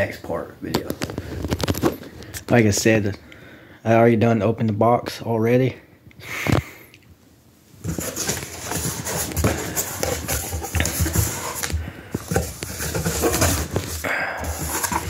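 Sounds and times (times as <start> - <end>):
plastic wrap crackling: 0.8 - 2.2
cardboard box flaps handled: 7.8 - 15.0.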